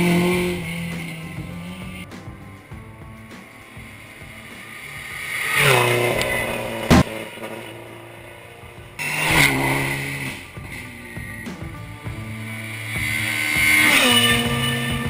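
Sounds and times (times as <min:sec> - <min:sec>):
rally cars passing at speed: 0:00.0 - 0:02.0, 0:03.8 - 0:15.0
sharp bang: 0:00.9 - 0:07.4.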